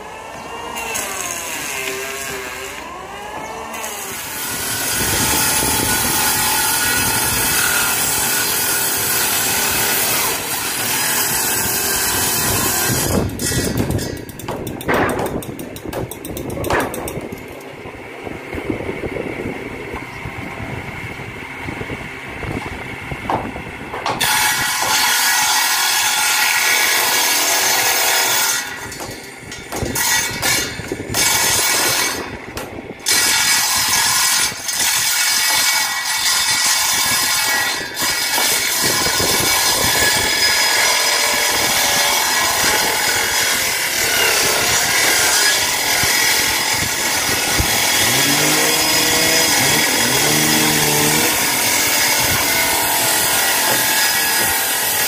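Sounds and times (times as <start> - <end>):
saw cutting wood: 0.0 - 17.3, 23.4 - 55.0
machine motor running: 47.0 - 53.9.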